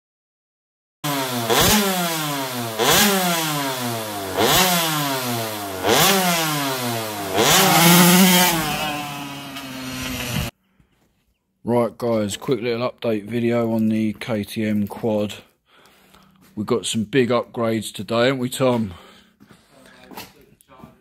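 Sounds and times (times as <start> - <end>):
two-stroke engine revving: 1.0 - 10.5.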